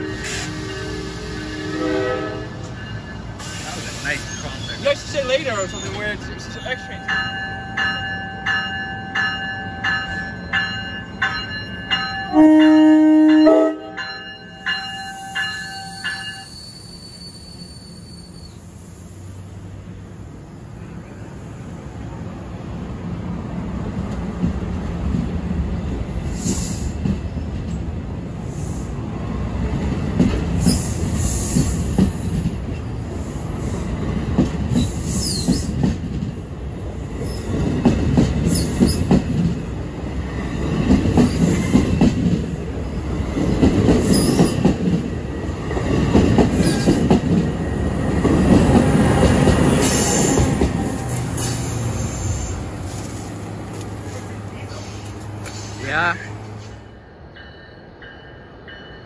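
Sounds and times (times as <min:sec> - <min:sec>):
high wheel squeals: 0:02.6 - 0:07.1, 0:14.9 - 0:19.1, 0:34.8 - 0:35.8, 0:44.0 - 0:44.6.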